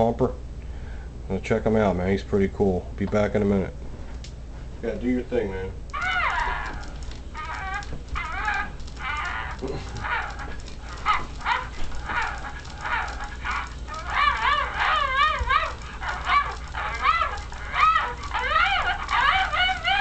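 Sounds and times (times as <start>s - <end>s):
toy dog yips and barks: 5.9s - 20.0s.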